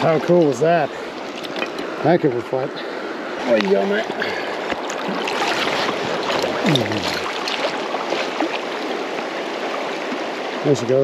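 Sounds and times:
river water rushing and splashing: 0.0s - 11.0s.

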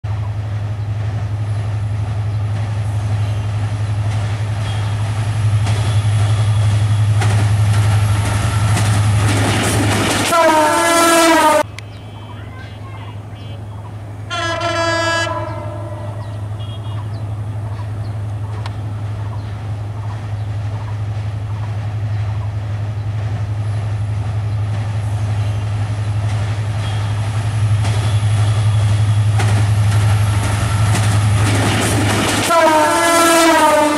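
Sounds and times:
locomotive engine drone: 0.1s - 33.9s
train wheel noise: 0.1s - 33.9s
train air horn blasts: 10.3s - 12.4s, 14.3s - 17.2s, 32.4s - 33.9s.

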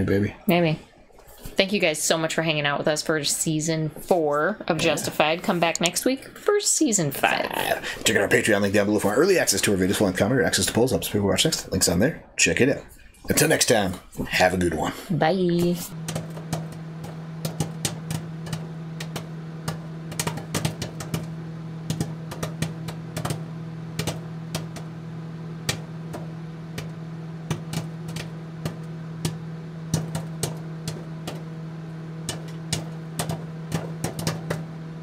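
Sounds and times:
low electrical hum: 0.0s - 35.0s
static crackling clicks: 4.6s - 6.3s, 15.5s - 34.8s.

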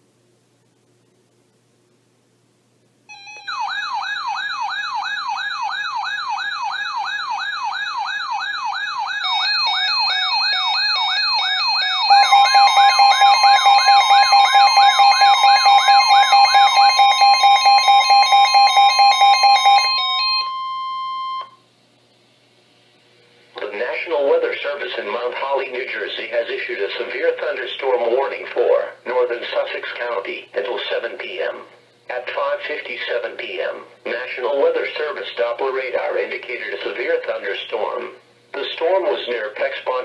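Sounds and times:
steady alarm tone: 3.1s - 21.6s
warbling siren: 3.1s - 21.6s
rapid pulsing beeps: 7.2s - 21.5s
device beeping: 9.1s - 21.6s.

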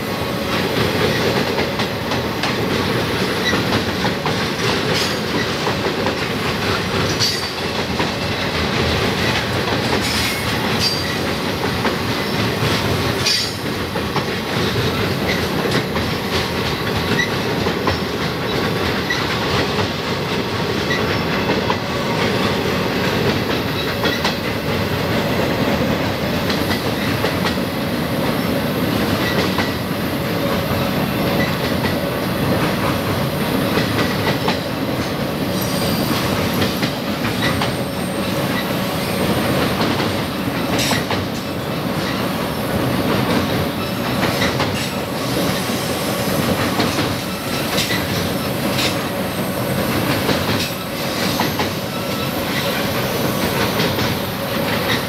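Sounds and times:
rumble of wheels on rail: 0.0s - 55.0s
clanks at rail joints: 0.4s - 49.2s, 49.8s - 55.0s
high wheel squeal: 35.5s - 36.8s.

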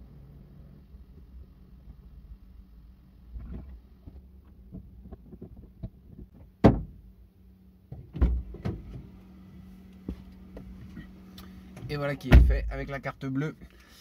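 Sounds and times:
knocks and bumps of person getting in: 3.3s - 7.0s, 7.9s - 9.1s
car door opening: 7.9s - 9.1s.

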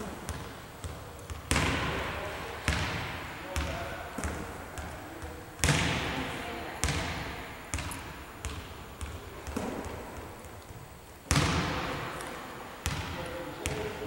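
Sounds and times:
balls bouncing on gym floor: 0.0s - 14.0s
volleyballs thudding off hands: 9.0s - 13.9s.

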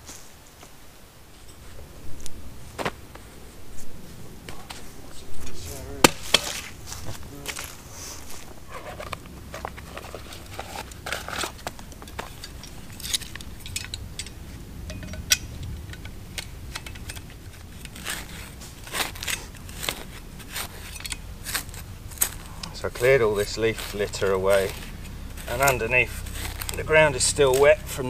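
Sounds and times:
dry leaves scraped by hand: 5.5s - 13.6s, 17.0s - 28.0s.

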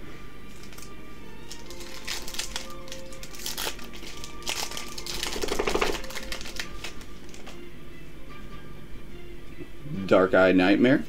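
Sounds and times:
background music: 0.0s - 11.0s
foil wrapper crinkling: 0.5s - 7.6s
foil wrapper ripping: 0.5s - 7.6s.

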